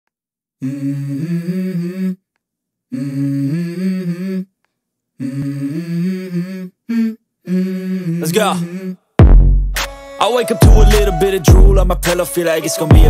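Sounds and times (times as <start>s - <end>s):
person humming a melody: 0.6s - 2.2s, 2.9s - 4.5s, 5.2s - 9.0s, 10.5s - 13.0s.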